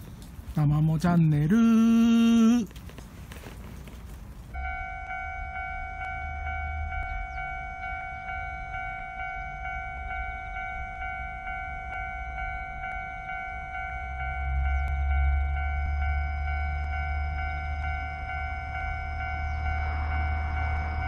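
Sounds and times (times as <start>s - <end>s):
low rumble: 4.5s - 21.0s
electronic crossing bell ringing: 4.6s - 21.0s.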